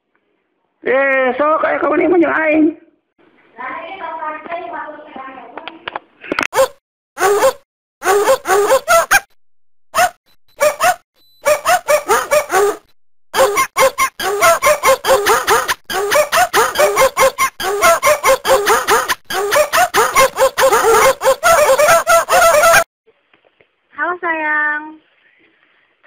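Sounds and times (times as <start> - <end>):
ringtone of rhythmic dog barks: 6.6 - 9.3, 10.0 - 22.9.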